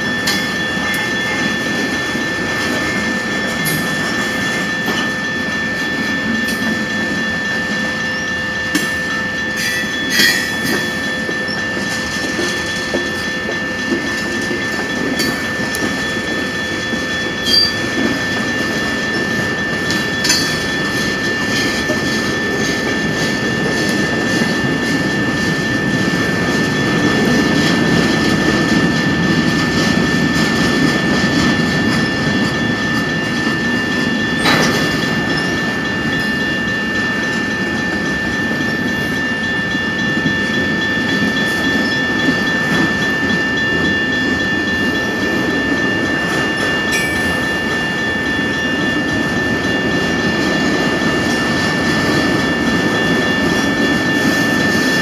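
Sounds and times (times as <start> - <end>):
crossing bell ringing: 0.0 - 55.0
train car clank: 0.0 - 55.0
train wheels rumbling on rail: 0.0 - 55.0
wheels clicking over rail joints: 8.7 - 39.0.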